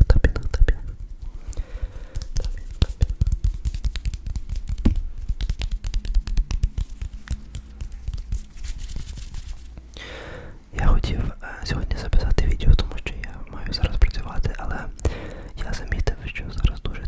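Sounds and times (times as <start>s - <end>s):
hands rubbing together: 0.5s - 9.9s.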